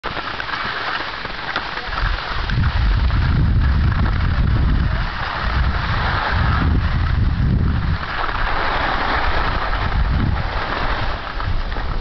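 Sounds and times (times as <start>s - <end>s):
skis hissing over snow: 0.0s - 12.0s
wind buffeting microphone: 1.8s - 12.0s.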